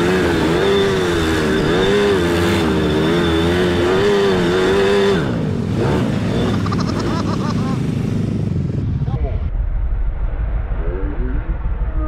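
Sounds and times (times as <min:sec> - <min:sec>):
atv engine revving: 0:00.0 - 0:09.0.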